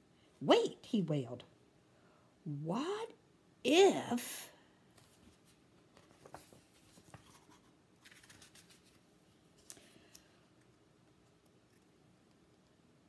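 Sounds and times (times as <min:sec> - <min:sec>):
page turning: 0:05.0 - 0:10.2.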